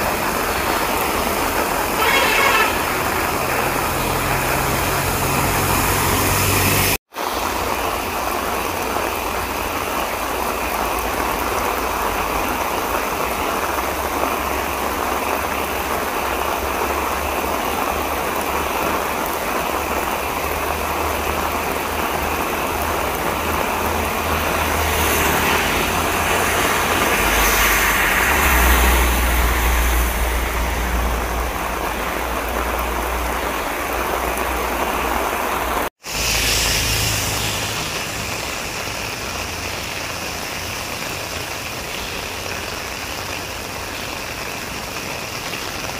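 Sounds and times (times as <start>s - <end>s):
vehicle engine rumble: 0.0s - 10.2s
heavy rain pouring: 0.0s - 45.9s
tyres swishing through water: 0.0s - 45.9s.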